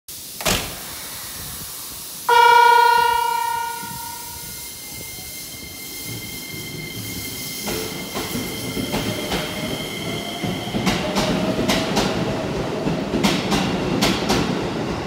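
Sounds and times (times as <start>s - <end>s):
electronic train horn: 2.3s - 5.1s
faint high tone: 2.3s - 5.8s.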